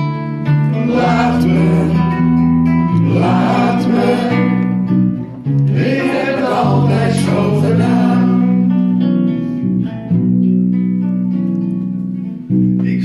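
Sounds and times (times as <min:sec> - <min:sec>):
acoustic guitar playing: 0:00.0 - 0:13.0
person singing: 0:00.7 - 0:04.8, 0:05.7 - 0:08.9.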